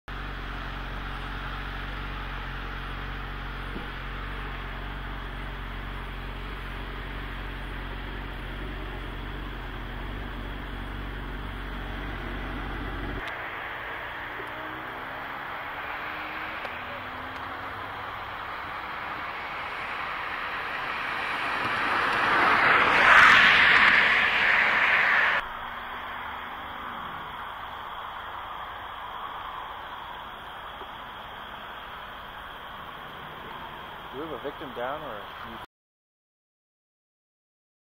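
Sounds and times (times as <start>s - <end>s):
low engine hum: 0.1s - 35.6s
highway traffic noise: 0.1s - 35.7s.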